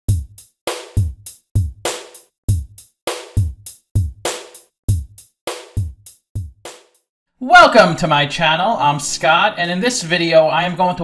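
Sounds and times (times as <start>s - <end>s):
drum beat: 0.1s - 7.0s.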